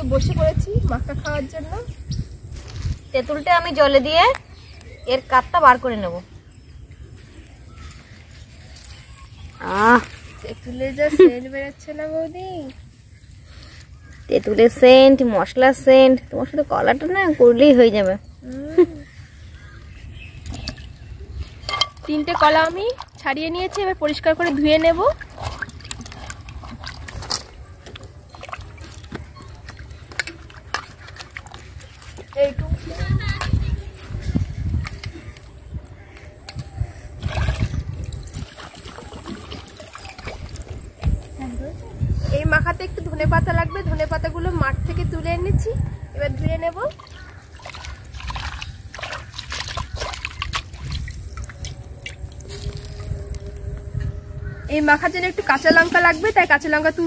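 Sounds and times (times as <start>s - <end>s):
water swishing and splashing: 20.5s - 34.2s, 37.1s - 41.4s, 46.6s - 53.6s.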